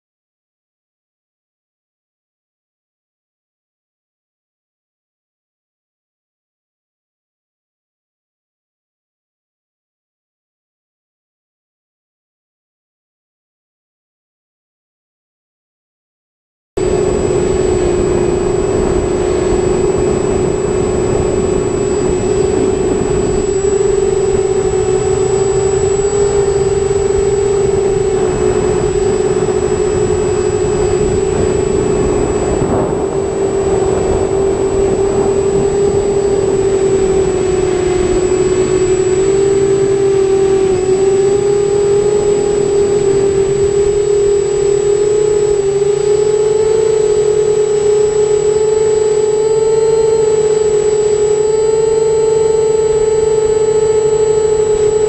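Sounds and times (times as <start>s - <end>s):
quadcopter motors humming: 16.8s - 55.0s.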